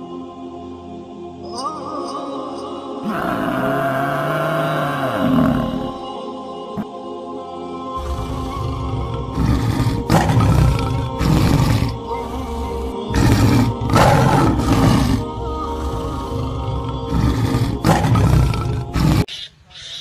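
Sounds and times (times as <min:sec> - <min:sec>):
background music: 0:00.0 - 0:19.3
lion roaring: 0:03.0 - 0:06.0, 0:08.0 - 0:19.3.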